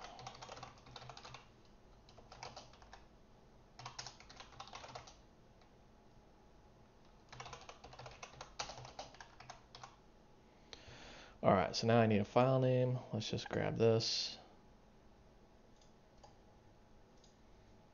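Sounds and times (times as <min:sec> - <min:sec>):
faint keyboard typing: 0:00.0 - 0:03.1, 0:03.7 - 0:05.7, 0:07.0 - 0:10.0, 0:15.7 - 0:16.4, 0:17.1 - 0:17.4.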